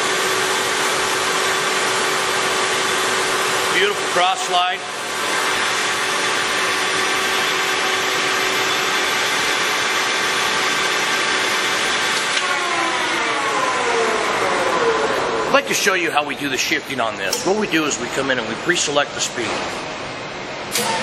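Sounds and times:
lathe gear whine: 0.0 - 19.9
lathe mechanical noise: 0.0 - 21.0.

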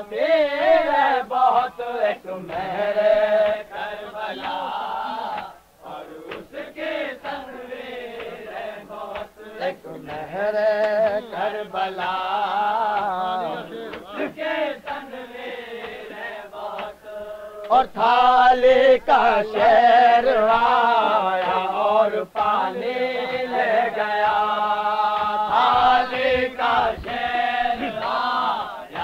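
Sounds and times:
men chanting slow melody: 0.0 - 29.0.

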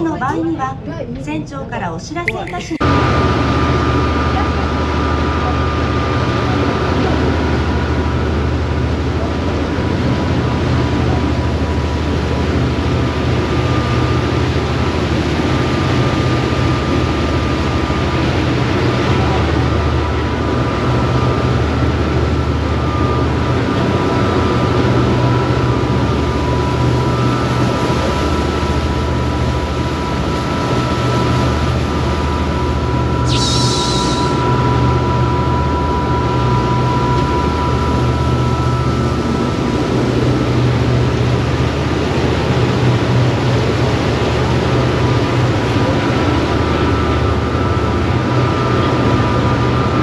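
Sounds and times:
boat engines droning: 0.0 - 33.2, 34.3 - 50.0
high engine whine: 25.6 - 45.5.

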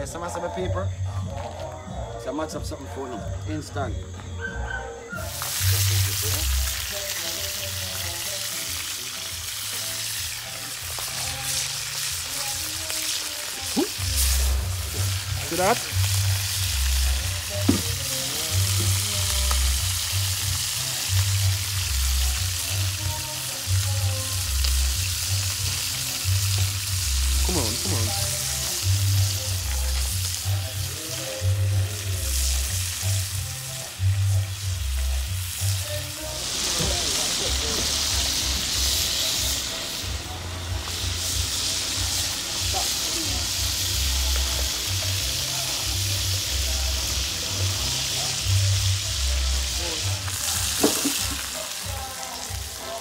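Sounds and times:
fish sizzling in hot oil: 5.2 - 53.0
music with heavy bass: 13.4 - 53.0.

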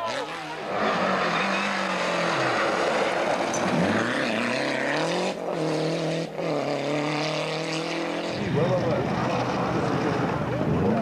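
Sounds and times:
rally car engine revving: 0.0 - 11.0.

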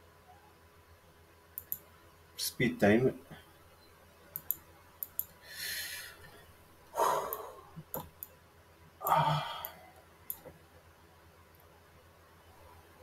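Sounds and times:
computer mouse clicks: 1.6 - 1.8, 4.3 - 5.4, 7.3 - 8.4
man breathing and sighing: 5.4 - 7.8, 9.0 - 10.0.

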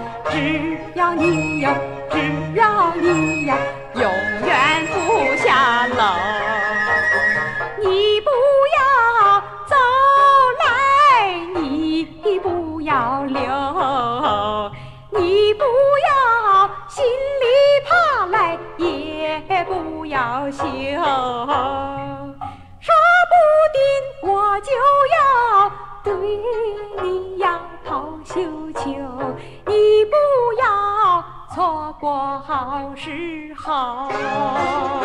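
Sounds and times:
woman singing with vibrato: 0.0 - 35.0.

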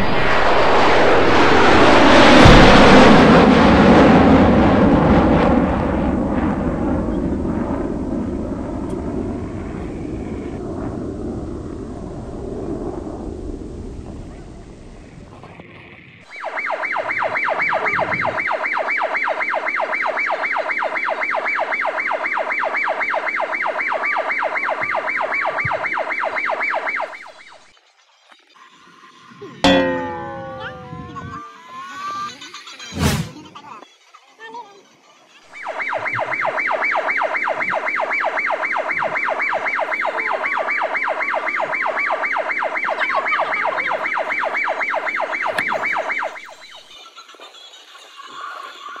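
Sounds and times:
loud rushing noise: 0.0 - 5.6
toy electronic siren: 16.3 - 32.9, 34.3 - 49.0.

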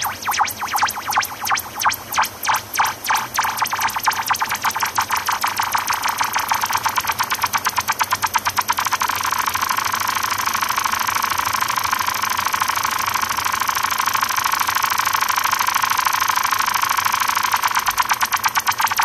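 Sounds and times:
ambient electronic music: 0.0 - 8.9.

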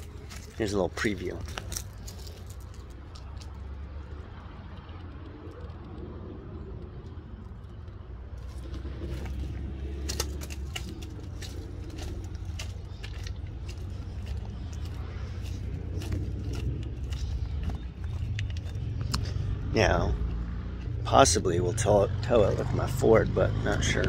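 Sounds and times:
footsteps crunching on gravel: 0.0 - 3.5, 8.4 - 19.7
steady low rumble: 0.0 - 24.0.

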